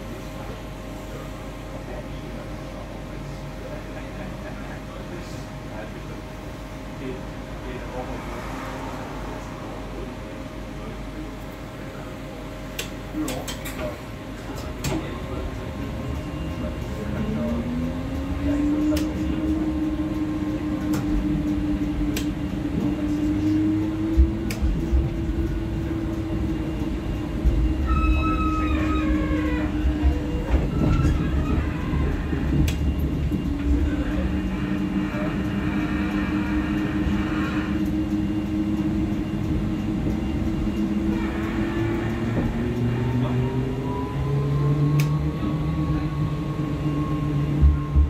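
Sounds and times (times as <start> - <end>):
tram drive whine: 0.0 - 48.0
wheels rumbling on rails: 0.0 - 48.0
high squeals: 27.7 - 32.5.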